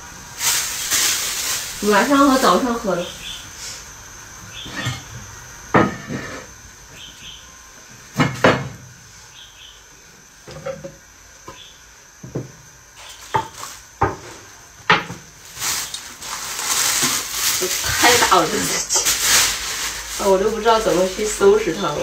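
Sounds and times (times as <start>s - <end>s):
rushing hiss: 0.0s - 5.0s, 15.3s - 22.0s.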